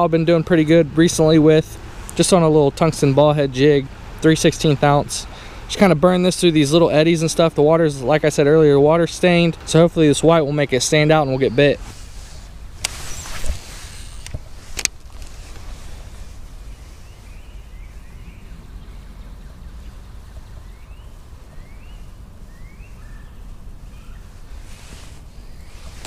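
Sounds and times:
faint bird chirps: 16.6s - 24.6s.

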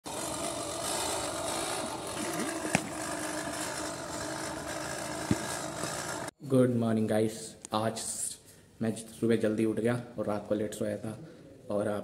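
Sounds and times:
push reel lawn mower whirring: 0.0s - 6.4s.

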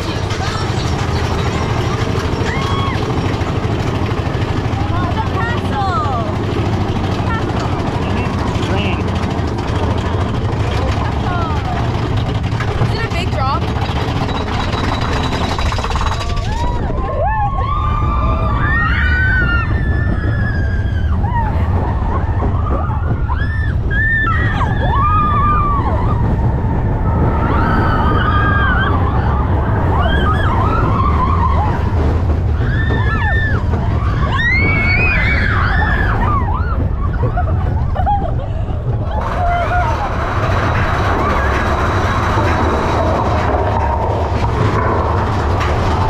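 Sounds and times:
riders screaming and whooping: 0.0s - 46.0s
roller coaster train rumble: 0.0s - 46.0s
wind of the ride: 0.0s - 46.0s.

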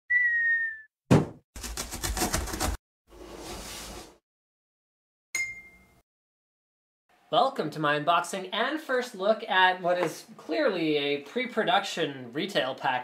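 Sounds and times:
cartoon whistle falling in pitch: 0.1s - 0.9s
sharp thump: 1.1s - 1.4s
brief ding: 5.4s - 6.0s.

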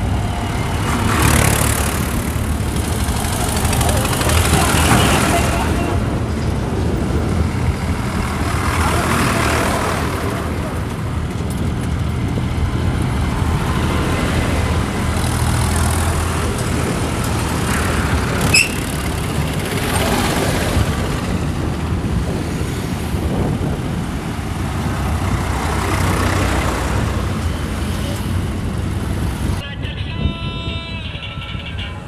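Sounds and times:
tractor engines driving past: 0.0s - 29.6s
short high squeal: 18.5s - 19.0s.

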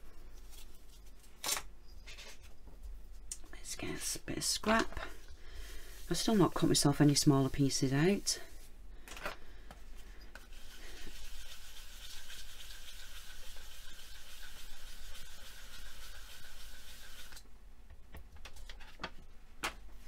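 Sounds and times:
hand rubbing over paper: 4.7s - 8.7s.

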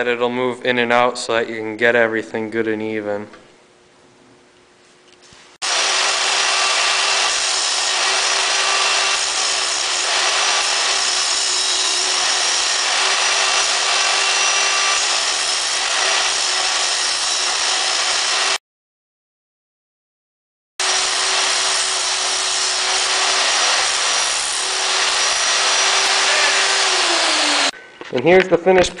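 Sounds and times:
angle grinder grinding steel: 5.6s - 18.6s, 20.8s - 27.8s.

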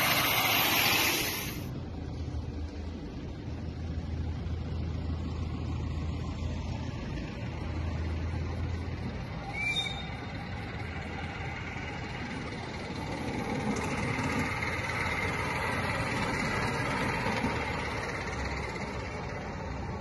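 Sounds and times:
model steam locomotive chuffing: 0.0s - 1.7s, 7.2s - 20.0s
wheels on rails: 0.0s - 20.0s.

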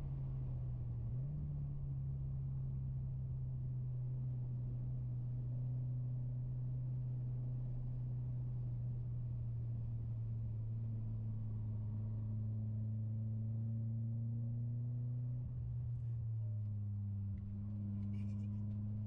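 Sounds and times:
car cabin engine and road drone: 0.0s - 19.0s.

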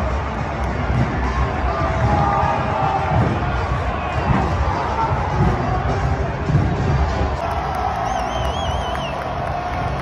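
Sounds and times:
low pulsing beat: 0.0s - 7.4s
stadium crowd chanting and cheering: 0.0s - 10.0s.

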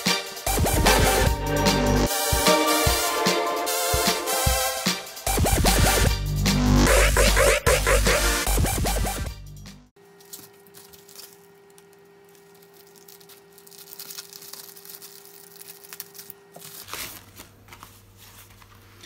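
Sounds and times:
scissors cutting plastic: 10.2s - 17.5s
plastic mailer crinkling: 10.2s - 19.0s.

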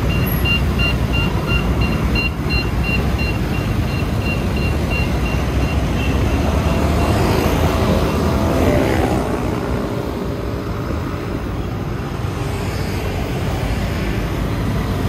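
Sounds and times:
high electronic beeps: 0.0s - 8.2s
scooter engine and road rumble: 0.0s - 15.0s.

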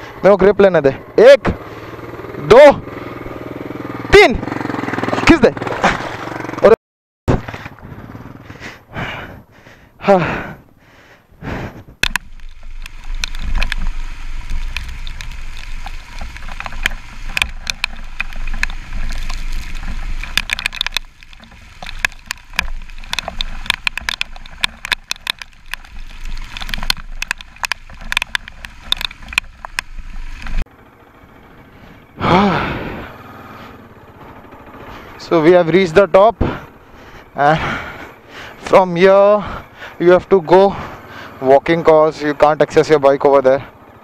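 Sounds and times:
motorcycle engine and wind rumble: 0.0s - 44.0s
knocks and rattles over stones: 11.9s - 30.6s.

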